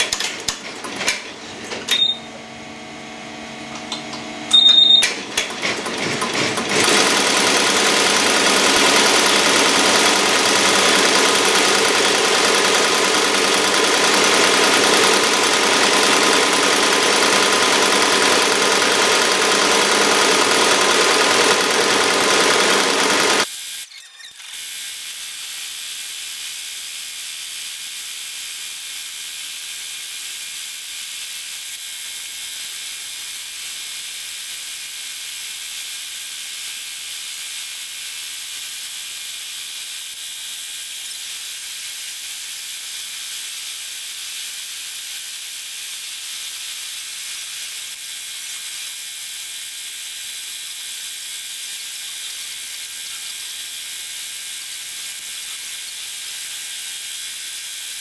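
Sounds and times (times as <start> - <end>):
embroidery machine stitching: 0.0 - 2.4, 3.6 - 24.5.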